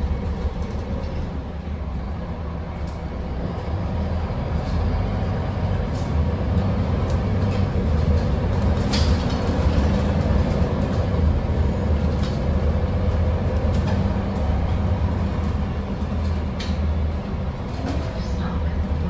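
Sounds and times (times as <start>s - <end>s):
bus engine and road rumble: 0.0s - 19.0s
bus fittings rattling: 7.0s - 11.2s.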